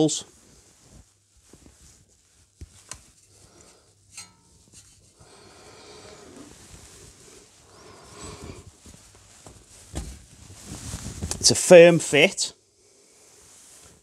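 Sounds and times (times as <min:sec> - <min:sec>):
faint breathy rustle: 0:04.7 - 0:11.5, 0:12.7 - 0:14.0.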